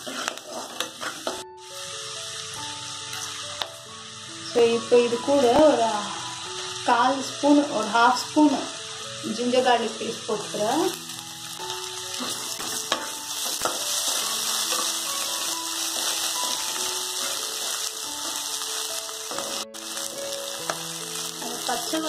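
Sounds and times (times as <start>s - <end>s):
onions sizzling in a pan: 0.0s - 22.0s.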